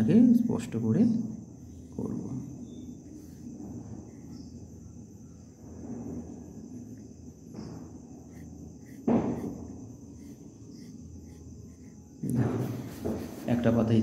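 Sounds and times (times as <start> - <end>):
crickets trilling: 0.0 - 14.0
pencil strokes on paper: 7.9 - 13.9.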